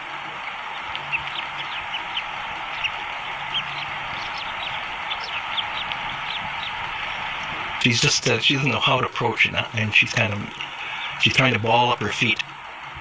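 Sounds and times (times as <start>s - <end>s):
eaglet peeping: 0.0s - 7.8s
steady hiss: 0.0s - 13.0s.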